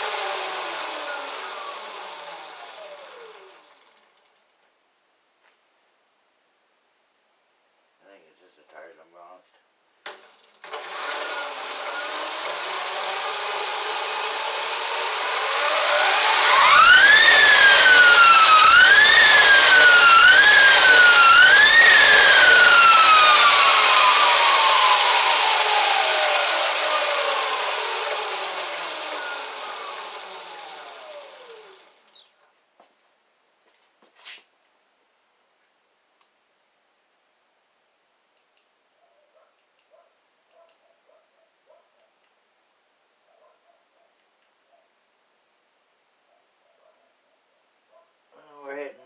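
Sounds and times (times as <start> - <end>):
electric motor whine: 0.0 - 3.9, 10.6 - 32.2
spinning chain and wheel rush: 0.0 - 4.4, 10.4 - 32.0.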